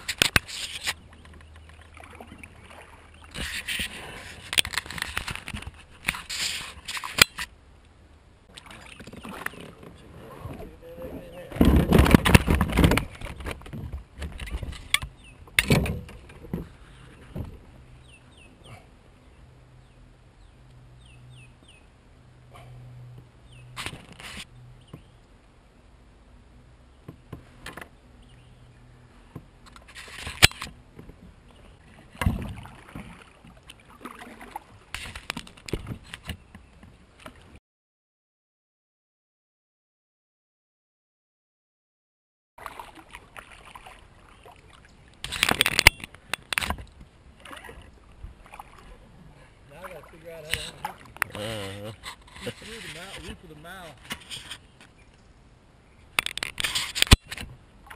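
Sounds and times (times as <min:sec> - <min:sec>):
low steady hum: 0:13.0 - 0:35.6.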